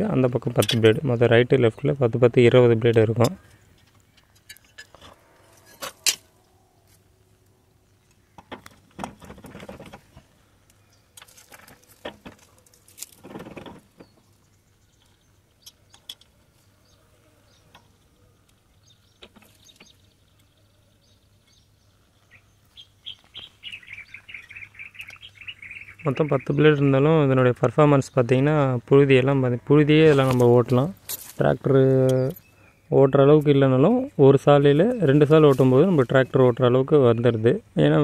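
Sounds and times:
rustling: 8.6s - 15.3s, 30.0s - 32.4s
faint bird chirps: 14.0s - 26.9s.

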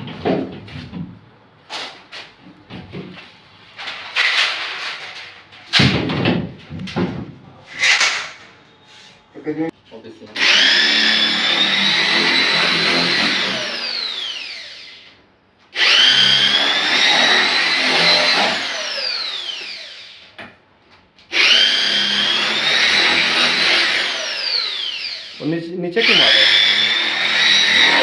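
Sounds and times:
power tool motor whining: 10.4s - 15.1s, 15.8s - 20.2s, 21.3s - 28.0s.

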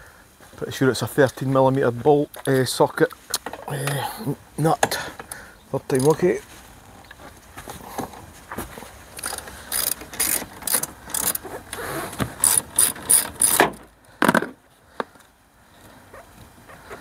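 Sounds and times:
socket ratchet clicking: 9.2s - 11.4s, 12.4s - 13.6s.

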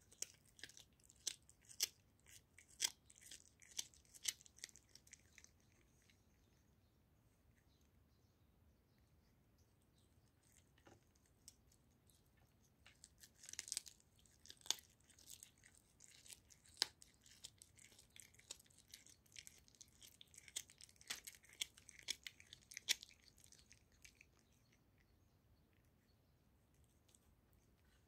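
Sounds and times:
teeth crunching: 0.0s - 6.3s, 10.3s - 25.1s
cat chewing raw meat: 0.0s - 6.7s, 9.2s - 28.0s.

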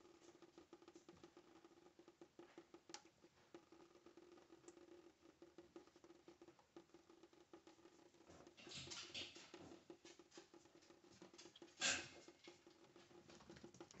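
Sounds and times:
cat rustling in sink: 7.2s - 14.0s.

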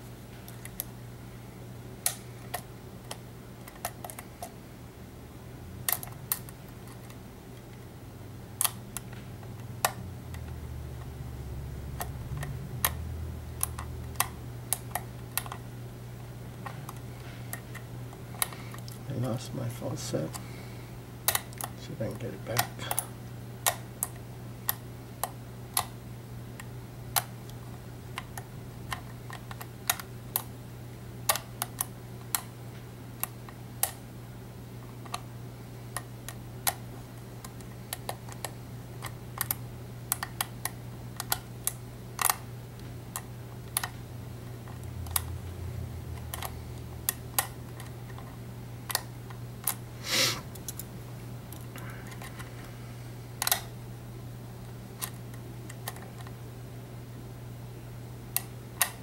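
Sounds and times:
low hum: 7.5s - 23.5s.

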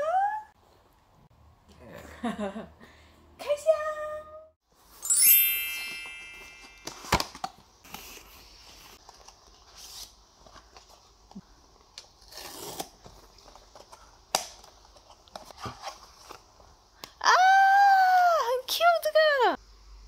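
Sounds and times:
sparkling chime: 4.9s - 7.1s.

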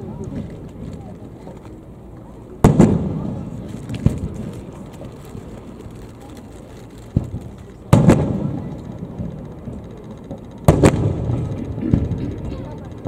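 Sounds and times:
firework shells bursting: 2.6s - 13.0s.

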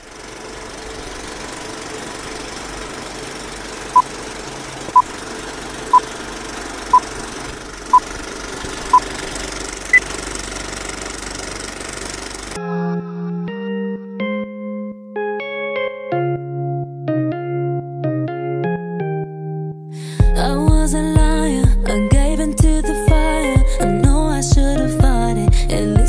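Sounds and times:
film projector running: 0.0s - 12.6s.

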